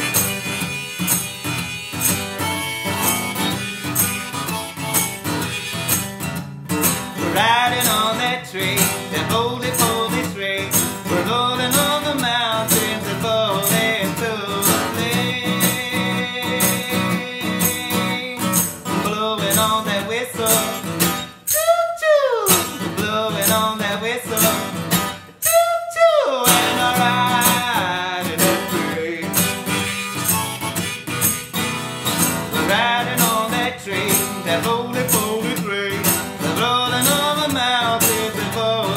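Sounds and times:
acoustic guitar strummed: 0:00.0 - 0:38.9
harmonica: 0:00.0 - 0:38.9
person singing: 0:07.2 - 0:31.2, 0:32.3 - 0:38.9.

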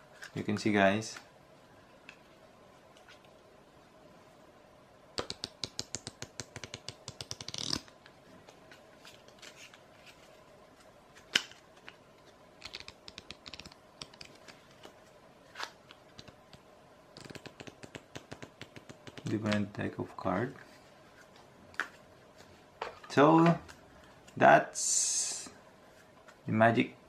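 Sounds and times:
cards snapping and tapping: 0:05.2 - 0:08.1, 0:12.6 - 0:14.9, 0:17.2 - 0:19.6
playing cards riffling: 0:11.1 - 0:16.4.

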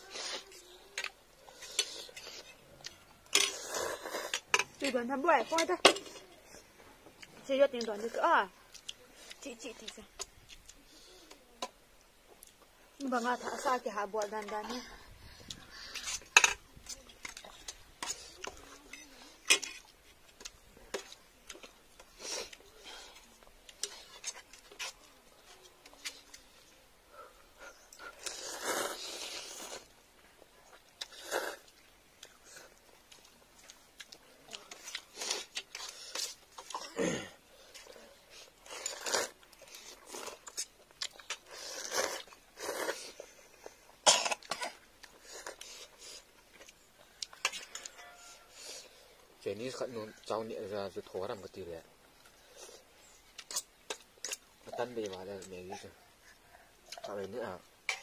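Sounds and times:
noodles being slurped: 0:00.0 - 0:04.6, 0:28.0 - 0:29.9, 0:34.6 - 0:44.0.

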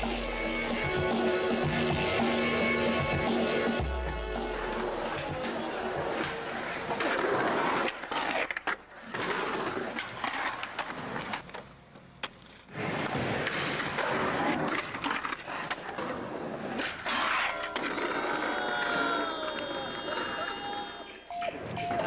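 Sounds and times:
skateboard wheels rolling on pavement: 0:04.7 - 0:19.3.

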